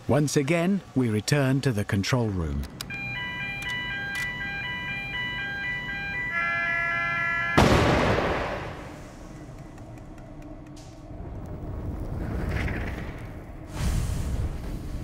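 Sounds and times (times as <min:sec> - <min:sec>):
tense chiming music: 0:02.9 - 0:07.8
loud spark discharge bang: 0:07.6 - 0:09.0, 0:13.7 - 0:15.0.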